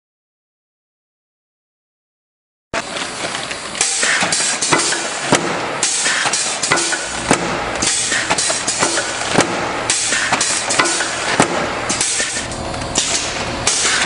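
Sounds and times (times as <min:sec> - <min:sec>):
conveyor machine running: 0:02.8 - 0:14.0
machine clacks and knocks: 0:02.8 - 0:14.0.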